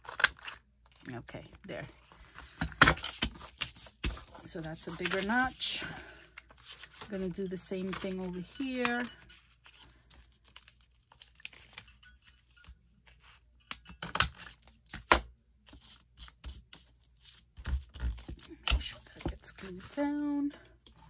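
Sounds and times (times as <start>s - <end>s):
paper rustling: 2.1s - 5.7s, 6.4s - 11.8s.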